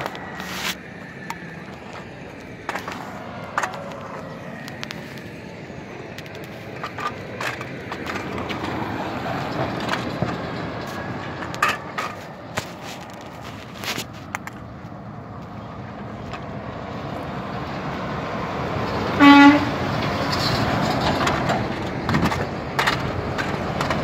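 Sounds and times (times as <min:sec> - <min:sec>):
sharp clicks and knocks: 0:00.0 - 0:05.3, 0:06.1 - 0:14.7, 0:20.8 - 0:24.0
heavy truck moving off: 0:00.0 - 0:24.0
low road rumble: 0:00.0 - 0:24.0
trucks in road traffic: 0:00.0 - 0:24.0.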